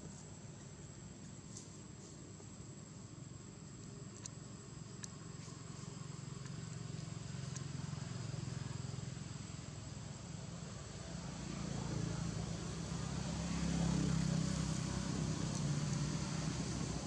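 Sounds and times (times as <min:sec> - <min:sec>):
distant motor vehicle rumble: 0:00.0 - 0:17.0
faint ticks: 0:03.7 - 0:07.9.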